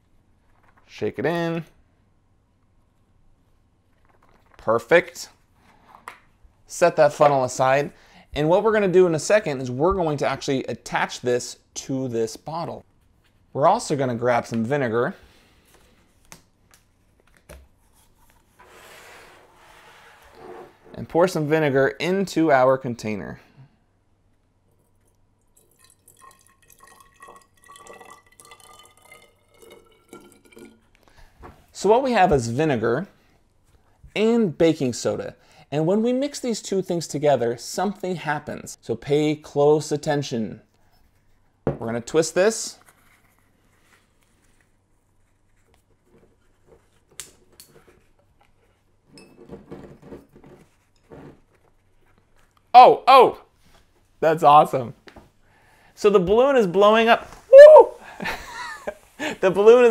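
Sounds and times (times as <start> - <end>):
liquid pouring into a bottle: 25.0 - 31.1.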